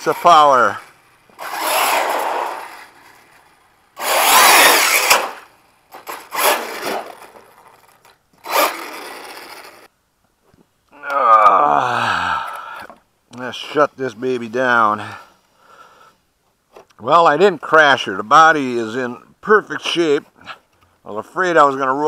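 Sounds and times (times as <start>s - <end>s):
rc car motor bursts: 0.0s - 9.9s.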